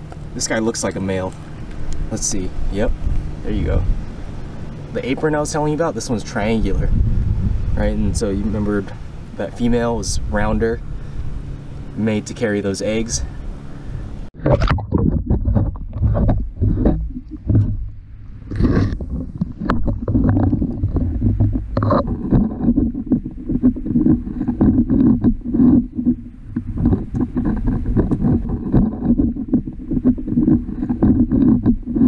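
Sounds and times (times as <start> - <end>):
pole knocking and scraping rocks: 0.0 - 3.9, 4.9 - 7.0, 14.4 - 32.0
muffled underwater rumble: 0.0 - 32.0.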